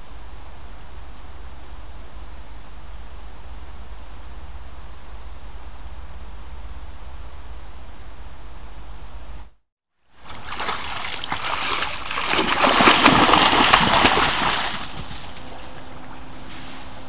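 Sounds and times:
water splashing and sloshing: 0:10.1 - 0:17.0.

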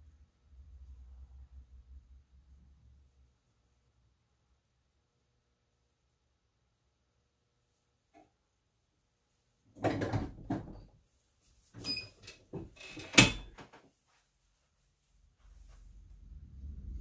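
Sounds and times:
heat press knocks and clatter: 0:09.8 - 0:10.9.

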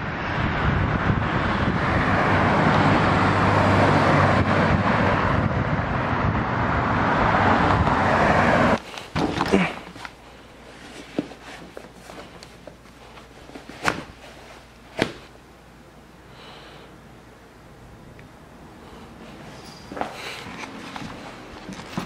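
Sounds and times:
passing cars rushing: 0:00.0 - 0:08.8
low traffic hum: 0:00.0 - 0:22.0
handling rustles: 0:08.8 - 0:15.4, 0:19.2 - 0:22.0.

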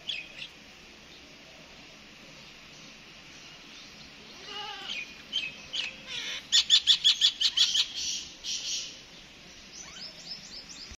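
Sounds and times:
myna calling: 0:04.2 - 0:08.3.

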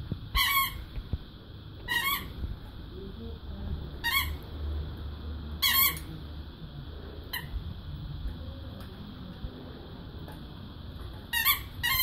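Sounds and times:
rubber dog toy squeaking: 0:00.3 - 0:00.9, 0:01.8 - 0:02.4, 0:04.0 - 0:04.4, 0:05.6 - 0:06.1, 0:07.3 - 0:07.6, 0:11.2 - 0:12.0.

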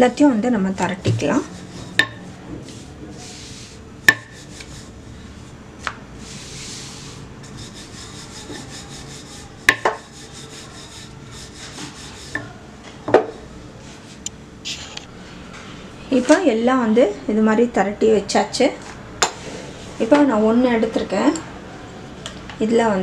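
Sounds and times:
rolling pin rolling dough: 0:00.8 - 0:14.2.

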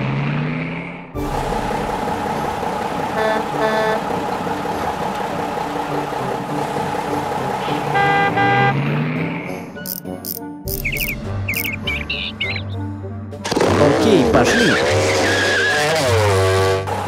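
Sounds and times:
vehicle engine running: 0:00.0 - 0:12.7, 0:13.4 - 0:17.0
horn toots: 0:03.1 - 0:04.3, 0:07.1 - 0:09.4, 0:13.4 - 0:17.0.

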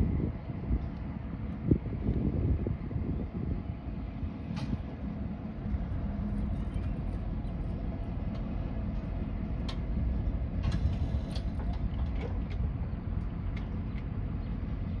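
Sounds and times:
steady low rumble: 0:00.0 - 0:15.0
gate mechanism clicks and clunks: 0:10.6 - 0:14.1.

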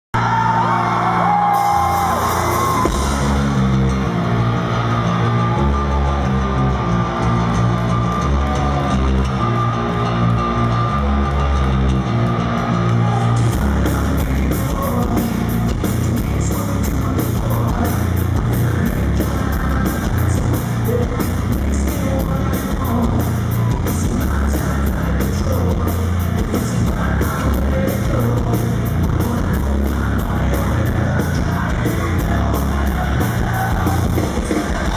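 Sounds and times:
heavy guitar and bass riff: 0:00.2 - 0:34.9
drum kit with cymbals: 0:01.5 - 0:03.7, 0:13.5 - 0:34.9.

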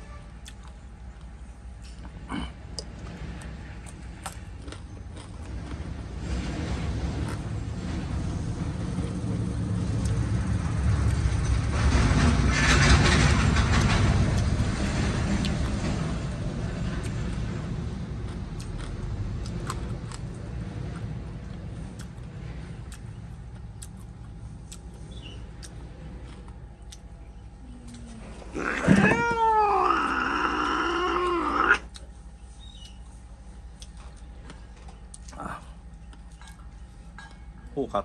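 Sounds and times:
vehicle passing by: 0:05.3 - 0:23.5.

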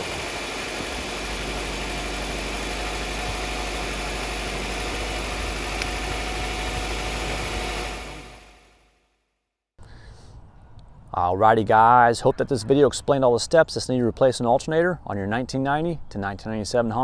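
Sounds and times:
car engine idling: 0:00.0 - 0:08.6.

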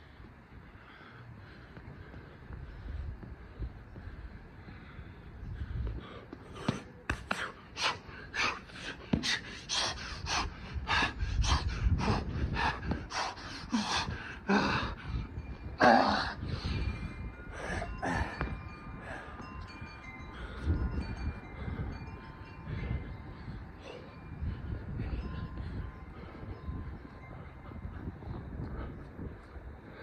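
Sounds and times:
faint wind chimes: 0:00.0 - 0:30.0
man panting and gasping: 0:00.0 - 0:30.0.

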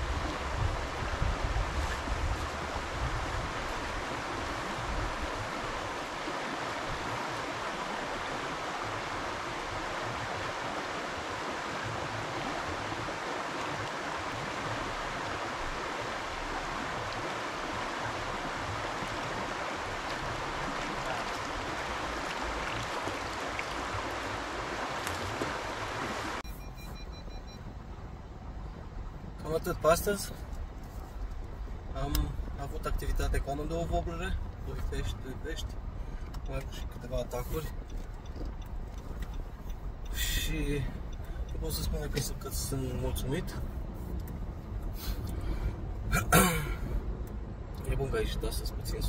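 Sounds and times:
river rushing over stones: 0:00.0 - 0:26.4
low rumble inside car: 0:26.4 - 0:49.0.

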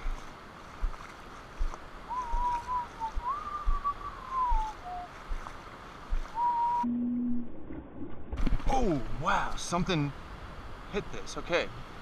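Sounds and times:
person whistling a tune: 0:02.1 - 0:05.1, 0:06.3 - 0:06.9.

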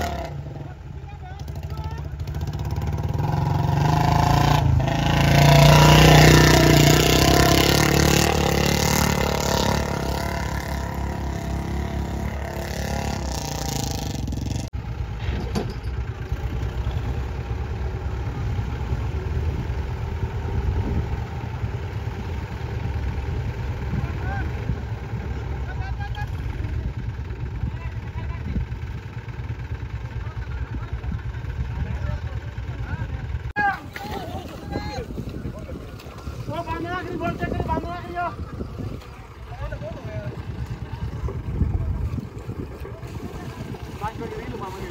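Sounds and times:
tractor engine revving: 0:00.0 - 0:44.9.

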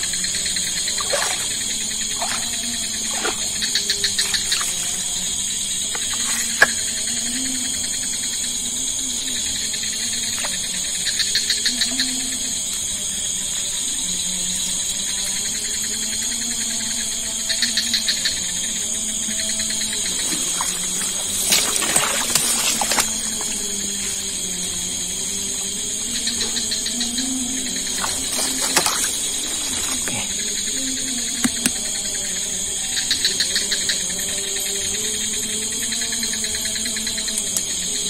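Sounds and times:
high-pitched insect chorus: 0:00.0 - 0:38.0.

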